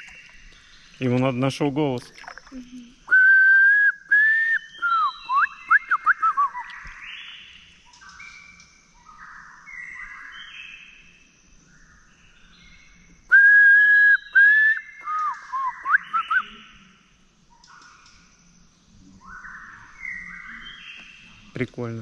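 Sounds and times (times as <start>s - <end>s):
man whistling bird-like calls: 3.1s - 6.8s, 13.3s - 16.7s.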